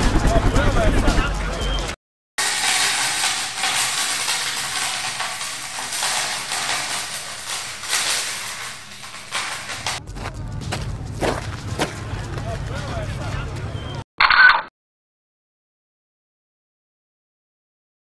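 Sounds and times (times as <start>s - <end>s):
metal coins pouring and clinking: 2.4s - 10.0s.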